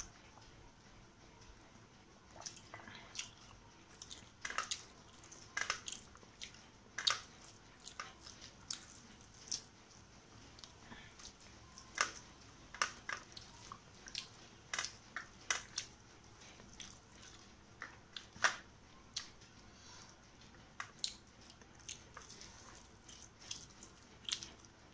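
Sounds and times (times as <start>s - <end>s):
chewing: 2.3s - 9.7s, 10.6s - 19.4s, 20.8s - 24.9s
wet smacks and squishes: 21.8s - 24.6s.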